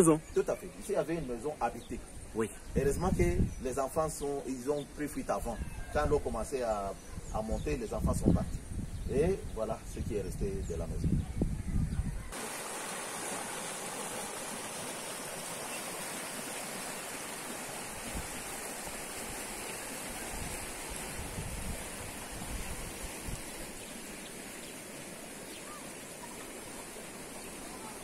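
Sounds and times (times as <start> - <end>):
river water rushing: 12.3 - 28.0.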